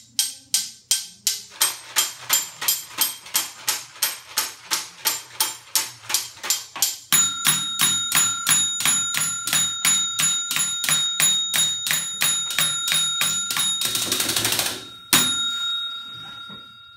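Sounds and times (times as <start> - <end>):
desk bell dinging: 6.5 - 16.9.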